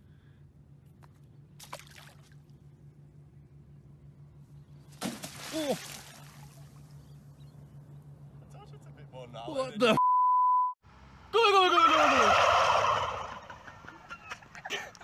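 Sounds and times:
low steady hum: 0:00.0 - 0:15.0
water splashing in shallows: 0:01.6 - 0:02.6, 0:04.9 - 0:06.9
short rising and falling cries: 0:11.3 - 0:14.0.

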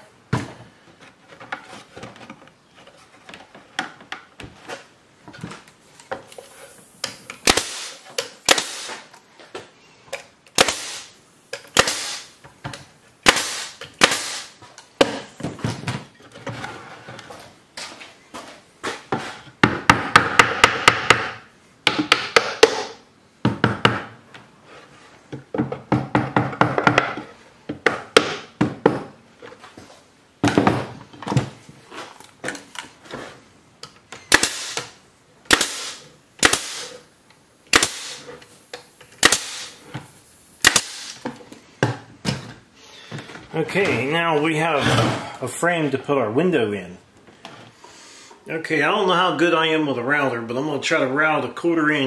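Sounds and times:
pneumatic nailer shots: 0:07.0 - 0:09.1, 0:10.5 - 0:12.4, 0:13.2 - 0:15.3, 0:19.8 - 0:21.4, 0:22.1 - 0:23.0, 0:34.2 - 0:37.1, 0:37.7 - 0:38.4, 0:39.1 - 0:39.8, 0:40.6 - 0:41.2.

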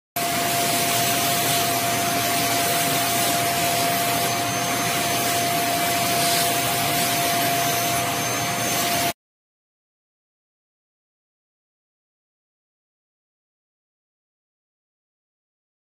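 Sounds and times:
stick vacuum cleaner running: 0:00.2 - 0:09.2.

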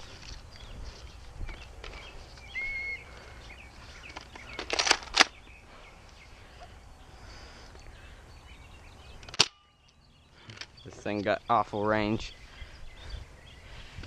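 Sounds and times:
high chirp: 0:00.4 - 0:03.8, 0:05.3 - 0:13.7.

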